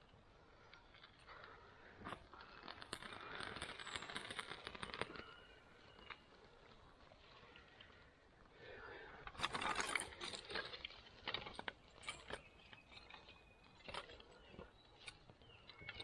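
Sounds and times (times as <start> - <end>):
fire crackling: 0.1 - 8.6.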